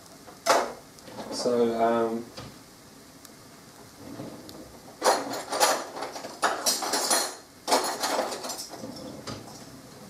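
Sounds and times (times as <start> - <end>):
cookware clattering and scraping: 5.0 - 9.7.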